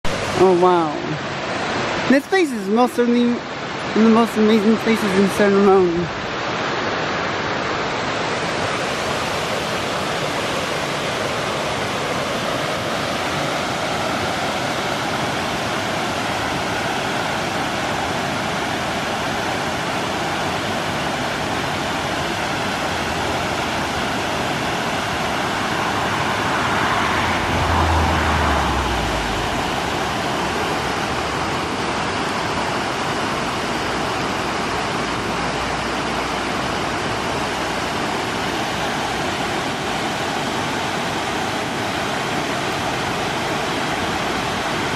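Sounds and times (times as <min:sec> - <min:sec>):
waterfall rushing over rocks: 0:00.0 - 0:44.9
low rumble: 0:26.5 - 0:31.4.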